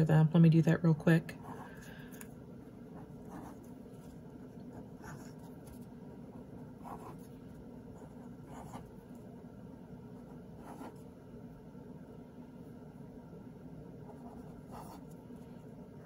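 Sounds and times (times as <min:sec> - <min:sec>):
low hum: 0:00.0 - 0:16.0
pen scratching on paper: 0:03.0 - 0:05.9, 0:06.8 - 0:07.4, 0:08.0 - 0:09.1, 0:10.2 - 0:11.1, 0:14.0 - 0:15.2.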